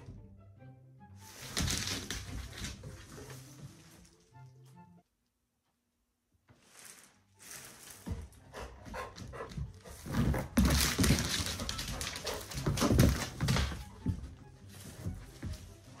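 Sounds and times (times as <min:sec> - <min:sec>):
dog paws clicking on hardwood floor: 0:01.3 - 0:04.3, 0:07.5 - 0:16.0
plastic trash bag rustling: 0:06.5 - 0:08.4.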